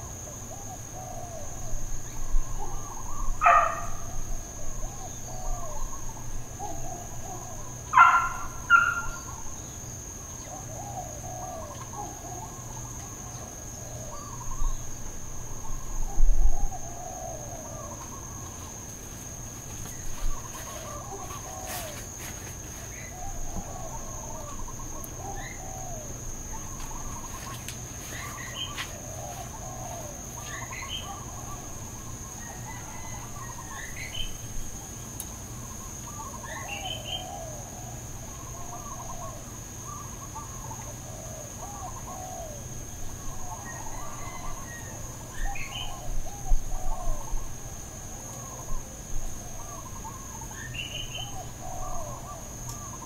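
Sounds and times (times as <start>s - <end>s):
high insect drone: 0.0s - 53.0s
birds warbling: 4.9s - 9.7s, 22.9s - 34.5s, 35.8s - 42.6s, 49.5s - 53.0s.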